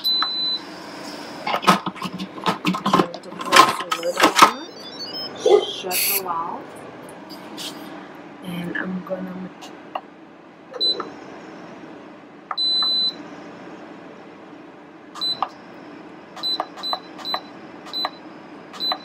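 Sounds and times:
control panel beeping: 3.9 - 6.0, 18.8 - 19.0.

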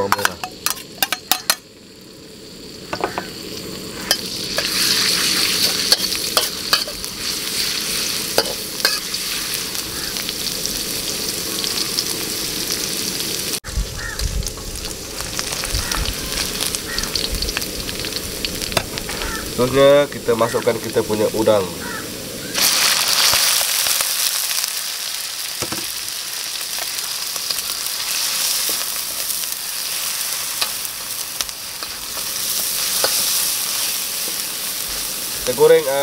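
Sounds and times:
garlic sizzling in hot oil: 0.0 - 36.0
utensil clicking and scraping wok: 0.1 - 1.6, 4.0 - 10.4, 14.5 - 19.5, 22.6 - 35.6.

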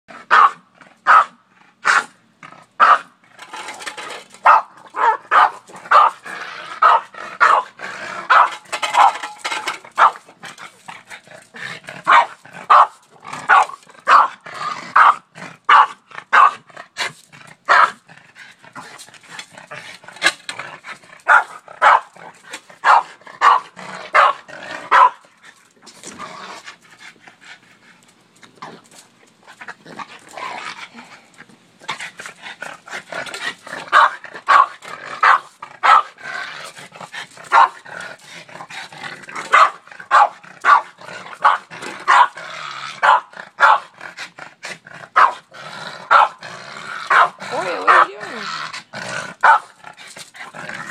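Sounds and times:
dog barking: 0.3 - 2.1, 4.4 - 6.2, 6.8 - 7.7, 12.1 - 14.4, 15.0 - 16.6, 21.3 - 22.1, 22.8 - 25.2, 33.9 - 36.1, 39.5 - 42.4, 43.0 - 43.9, 45.2 - 45.4, 46.1 - 46.4, 47.1 - 48.1, 49.4 - 49.7.

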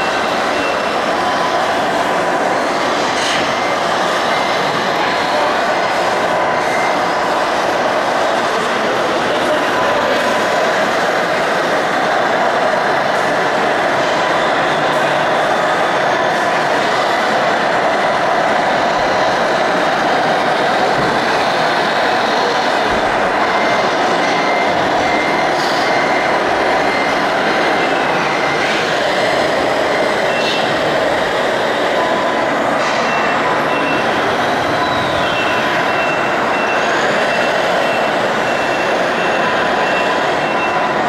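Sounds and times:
model construction machines din: 0.0 - 41.0
high electronic beeping: 22.1 - 41.0.

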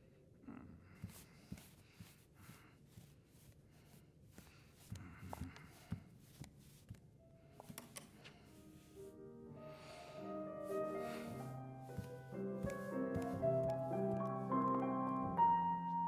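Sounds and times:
soft taps and rustles: 1.0 - 8.9, 10.7 - 14.9.

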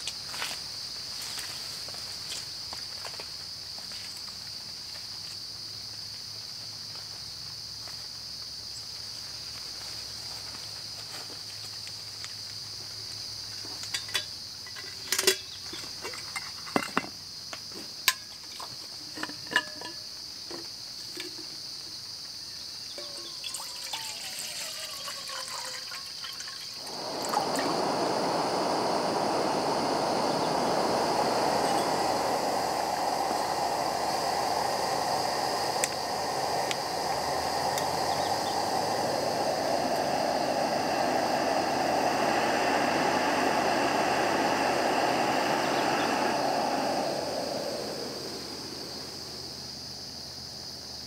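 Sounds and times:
insects chirping: 0.0 - 51.0
gas stove burner hissing: 12.3 - 49.8
water pouring into kettle: 23.0 - 47.6.

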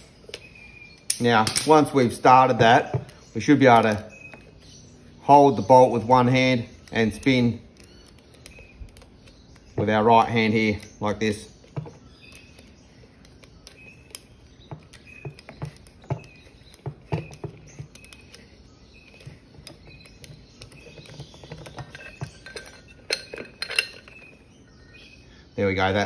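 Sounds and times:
metallic clicks and clinks: 19.1 - 24.5.

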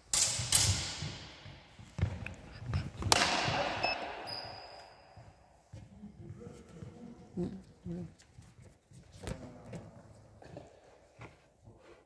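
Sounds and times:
sword blades clashing: 0.1 - 1.3.

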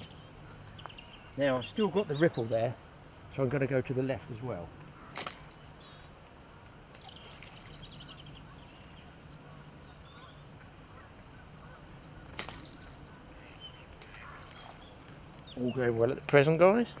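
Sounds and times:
faint high bird calls: 4.4 - 17.0.

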